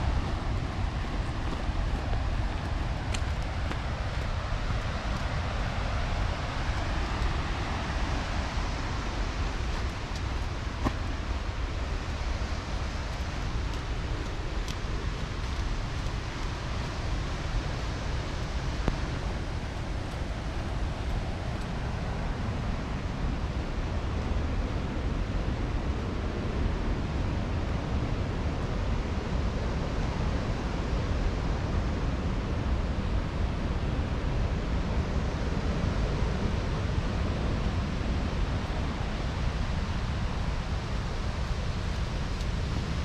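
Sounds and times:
river rushing: 0:00.0 - 0:43.0.

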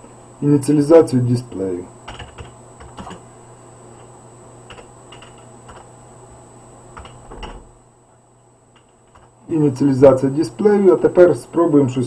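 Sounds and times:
keyboard keys tapping: 0:02.1 - 0:03.2, 0:04.7 - 0:05.9, 0:07.0 - 0:07.6, 0:08.8 - 0:09.3.

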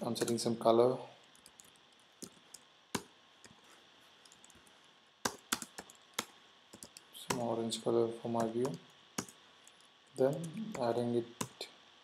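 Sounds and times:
keyboard keystrokes: 0:05.2 - 0:07.4.

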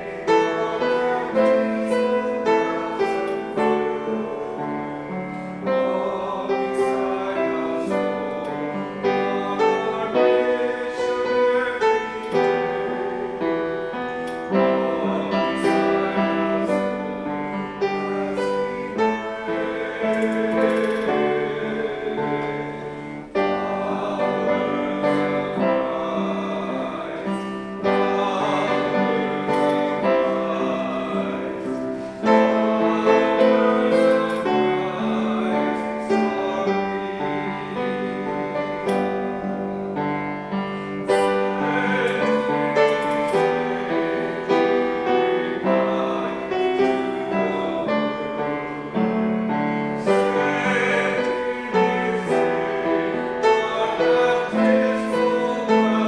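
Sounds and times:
person singing: 0:00.0 - 0:40.0, 0:40.7 - 0:56.0
slow piano chords: 0:00.0 - 0:56.0.

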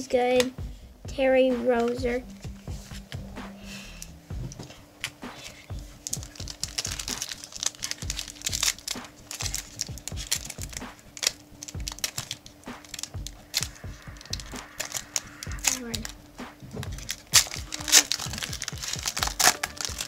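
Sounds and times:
plastic wrapper crinkling and tearing: 0:05.0 - 0:16.2, 0:16.8 - 0:20.0.

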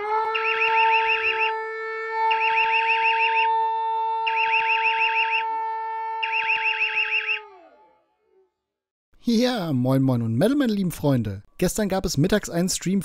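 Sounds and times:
alarm two-note drone: 0:00.4 - 0:01.5, 0:02.3 - 0:03.5.

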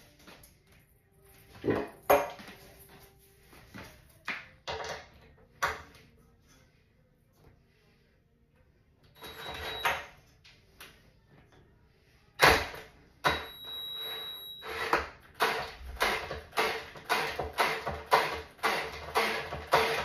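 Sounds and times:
cordless drill driving screws: 0:14.6 - 0:20.0.

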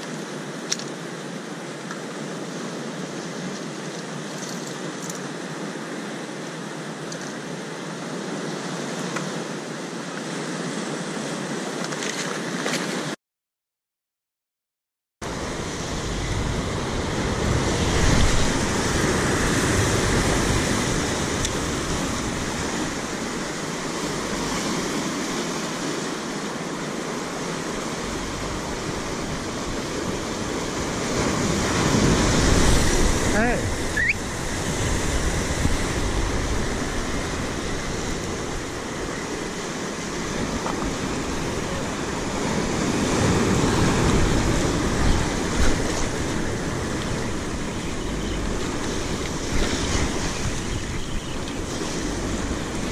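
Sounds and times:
sea surf breaking over rocks: 0:15.2 - 0:52.9.

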